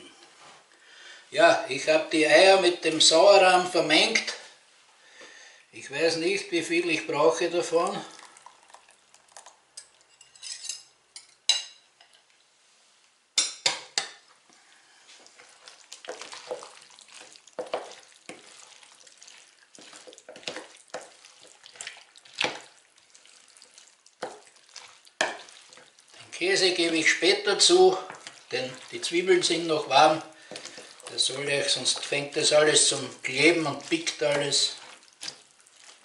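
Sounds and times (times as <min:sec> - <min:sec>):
wooden spoon stirring in a bowl: 0:13.6 - 0:36.0.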